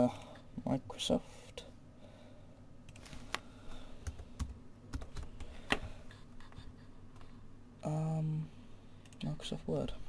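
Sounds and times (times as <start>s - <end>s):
keyboard typing: 4.0s - 5.8s.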